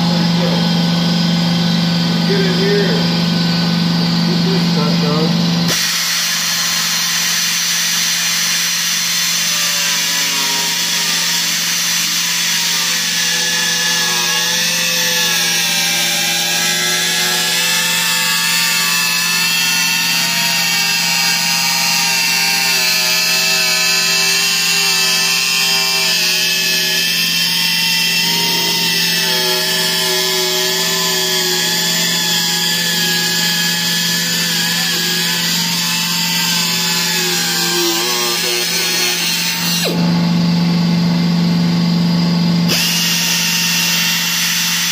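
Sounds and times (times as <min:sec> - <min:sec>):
pneumatic cut-off tool whining: 0:00.0 - 0:44.9.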